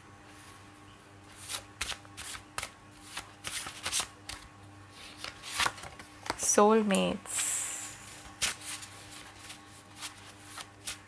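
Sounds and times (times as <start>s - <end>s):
cards being shuffled: 1.4s - 6.5s, 8.1s - 11.0s.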